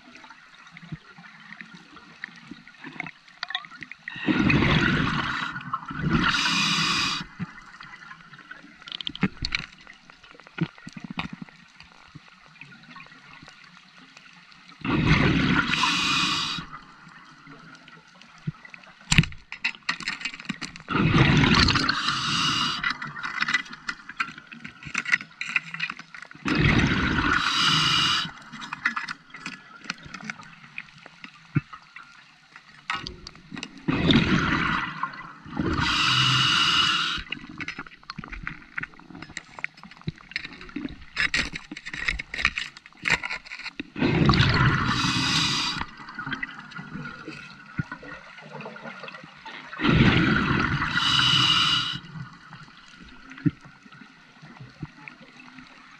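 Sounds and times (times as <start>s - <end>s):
exhaled bubbles gurgling: 4.0s - 9.6s, 14.8s - 18.7s, 20.9s - 24.2s, 26.4s - 29.4s, 32.9s - 39.2s, 43.9s - 55.5s
diver inhaling through regulator: 6.2s - 7.4s, 15.1s - 16.8s, 21.2s - 23.1s, 26.6s - 28.5s, 35.6s - 37.4s, 44.0s - 46.0s, 49.8s - 52.2s.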